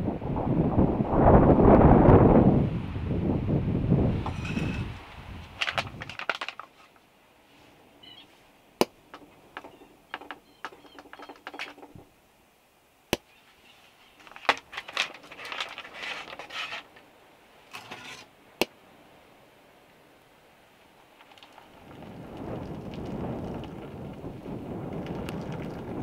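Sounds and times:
foil sachet crinkling: 5.5s - 7.0s, 14.2s - 17.0s.

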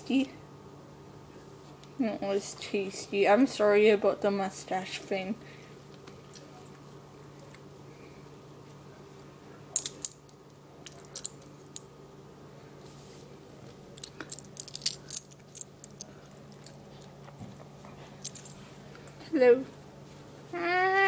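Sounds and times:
faint steady hum: 0.0s - 21.0s
sharp clicks and clinks: 14.0s - 16.8s.

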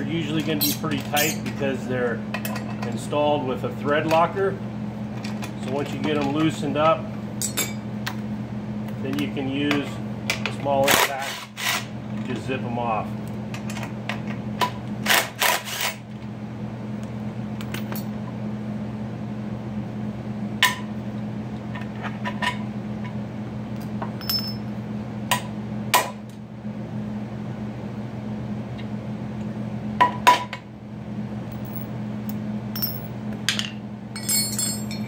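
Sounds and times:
steady low hum: 0.0s - 35.0s
metal clinks of wrenches and bolts: 0.4s - 1.5s, 24.2s - 24.6s, 34.2s - 35.0s.

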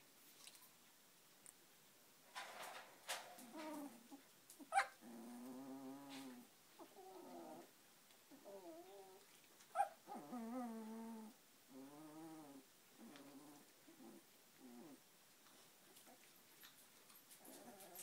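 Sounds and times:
puppies whining: 8.4s - 12.4s
puppy squeaks: 9.8s - 10.0s.

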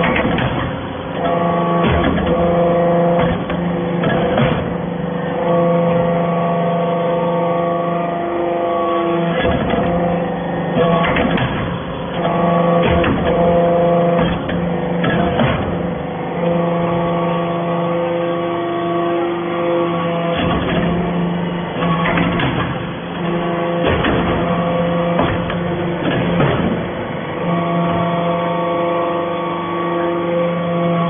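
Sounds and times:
hydraulic unit humming: 0.0s - 31.0s
metallic clanks and knocks: 10.8s - 15.9s, 21.8s - 22.9s, 23.8s - 26.9s.

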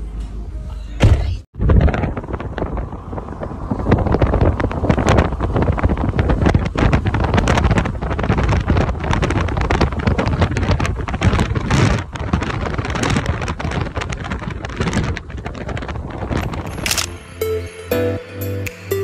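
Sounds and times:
wind buffeting microphone: 1.5s - 17.1s
background music: 16.7s - 19.0s.

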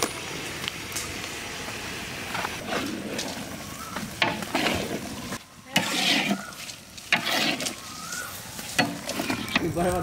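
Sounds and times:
stirrer scraping a pan: 2.6s - 9.8s.

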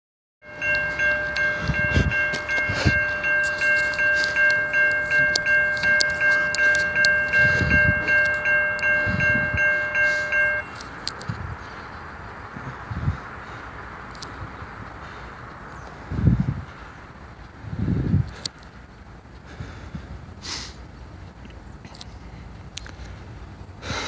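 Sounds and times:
railroad crossing bell ringing: 0.4s - 11.1s.

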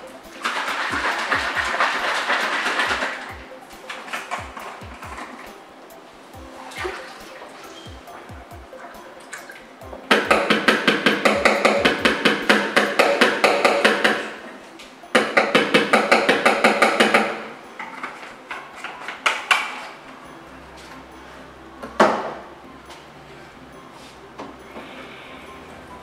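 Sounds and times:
plastic bottle shaken rattling: 0.2s - 5.6s.

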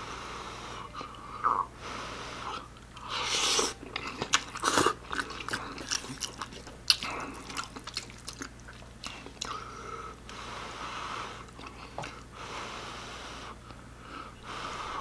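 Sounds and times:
wet chewing: 2.9s - 9.8s, 11.4s - 12.2s.

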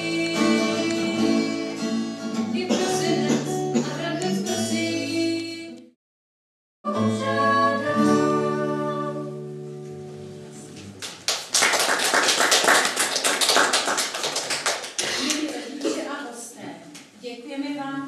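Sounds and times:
person singing: 0.0s - 5.9s, 6.9s - 9.4s
acoustic guitar: 0.0s - 6.0s, 6.9s - 11.3s
applause: 11.0s - 15.9s.

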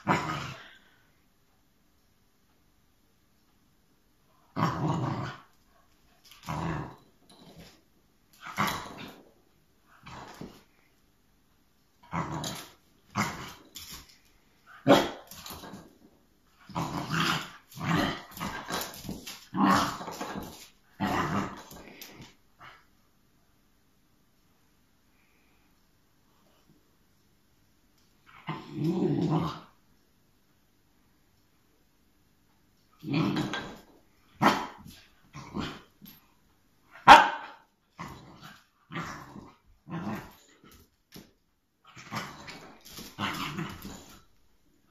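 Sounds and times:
puppy barking and growling: 14.7s - 15.8s, 33.0s - 35.9s, 36.9s - 40.5s.

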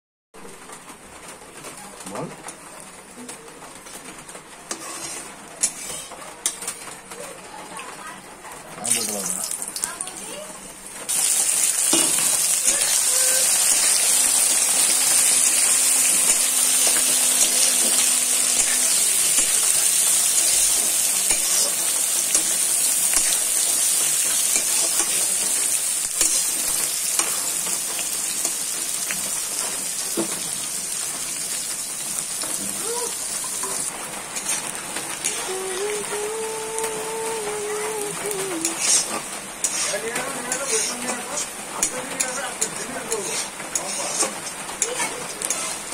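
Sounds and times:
metal spatula scraping pan: 4.7s - 6.6s, 11.8s - 28.7s, 33.4s - 35.4s, 38.6s - 45.9s
onions sizzling in hot oil: 4.7s - 6.8s, 8.8s - 45.9s.

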